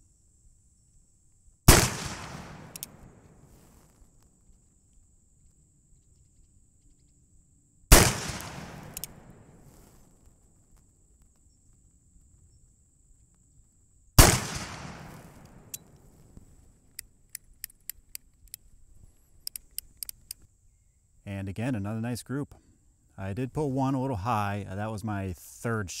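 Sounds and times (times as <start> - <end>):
light clicks of revolver handling: 2.5 - 3.1, 8.4 - 9.2, 15.3 - 20.5.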